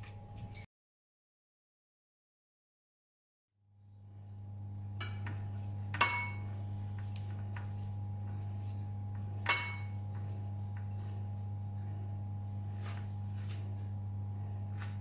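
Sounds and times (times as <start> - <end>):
steady low hum: 3.7 - 15.0
glass bowls clinking: 5.9 - 6.6, 9.4 - 11.2.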